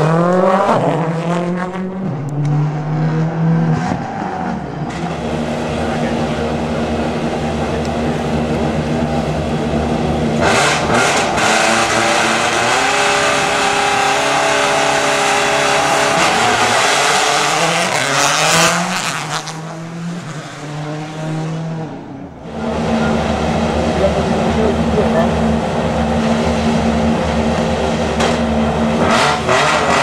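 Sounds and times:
rally car engine at full throttle: 0.0 - 30.0
rally car engine idling: 4.6 - 17.9, 22.0 - 29.2.

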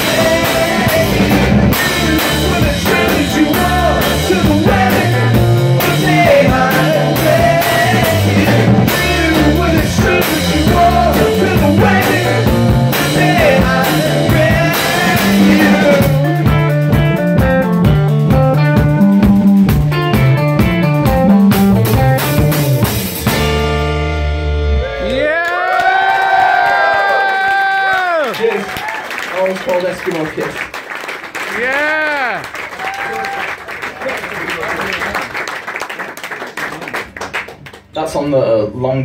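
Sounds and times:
electric guitar: 0.0 - 25.2
drum kit: 0.0 - 25.3
bass guitar: 0.0 - 25.4.

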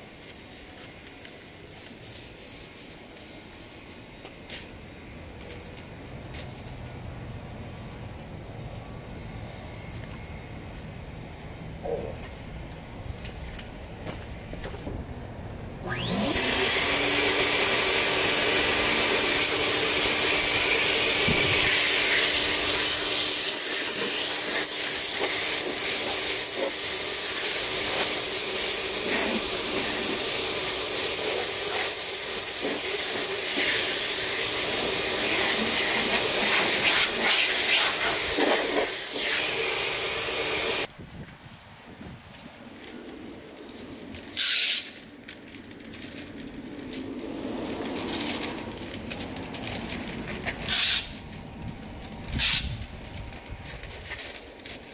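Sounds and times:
orbital sander whining: 15.8 - 40.9.

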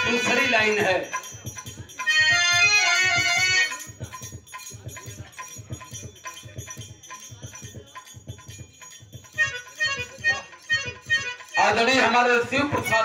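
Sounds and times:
harmonium held notes: 0.0 - 4.0, 9.3 - 13.0
dholak drum strokes: 0.0 - 13.0
jingly percussion: 0.0 - 13.0.

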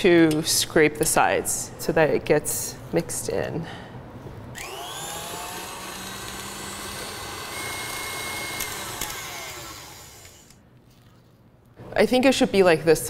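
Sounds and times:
stand mixer motor running: 4.6 - 10.5.

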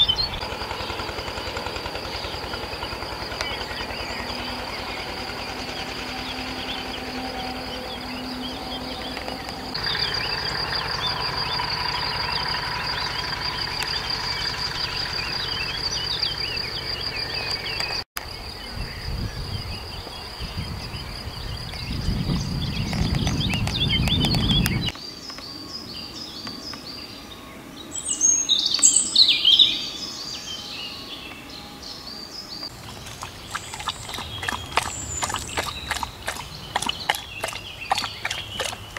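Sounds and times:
birds singing and chirping: 0.0 - 38.9
high insect trill: 0.4 - 23.7.

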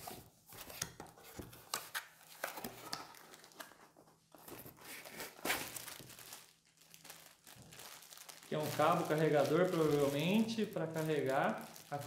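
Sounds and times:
cardboard being handled: 0.0 - 6.4
plastic wrapping crinkling: 1.7 - 12.0.

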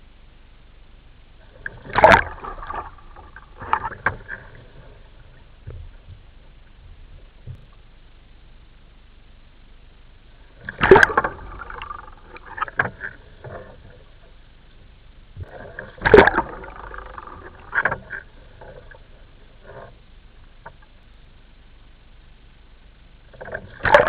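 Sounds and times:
loud water splashes: 1.8 - 3.9, 10.6 - 12.7, 16.0 - 17.8.

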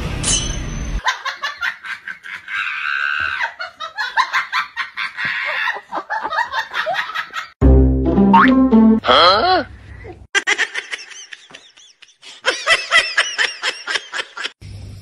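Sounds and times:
music: 7.6 - 9.0.

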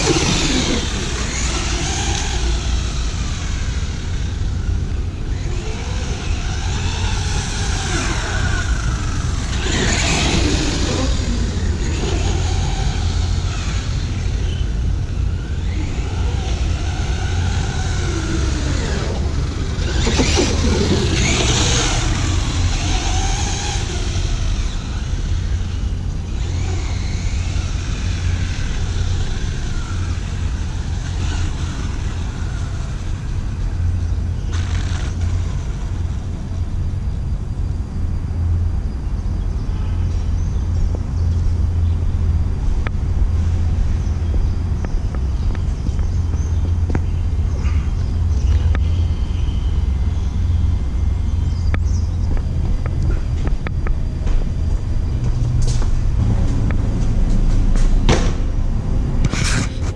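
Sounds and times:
electric toy truck motor whining: 0.0 - 36.7
low rumble: 40.5 - 59.9.

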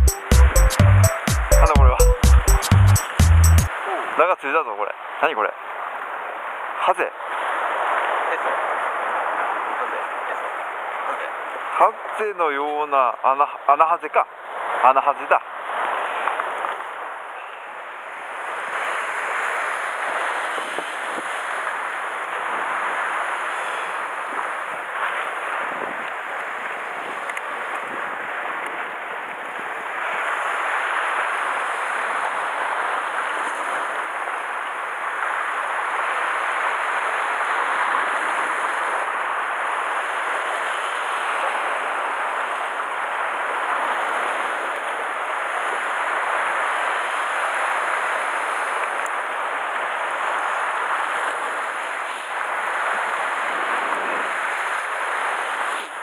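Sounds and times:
surf breaking on rocky shore: 18.2 - 56.0.

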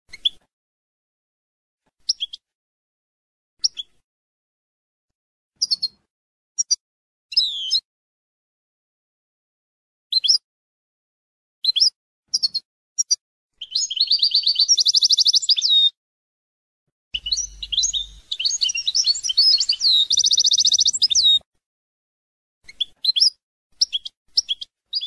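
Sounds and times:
goldfinch twittering and trilling: 12.4 - 15.9, 17.2 - 21.4.

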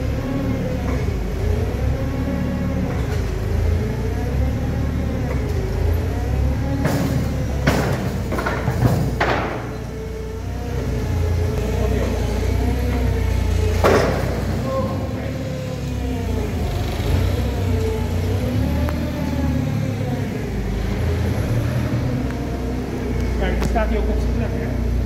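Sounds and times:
forklift engine running: 0.0 - 25.0
metal clanks: 6.8 - 10.0.

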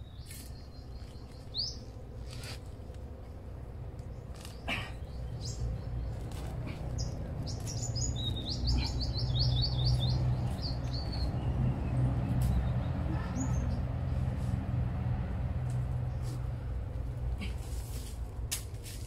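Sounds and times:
bird chirping: 0.0 - 2.5, 4.1 - 13.9
steady low rumble: 0.0 - 19.0.

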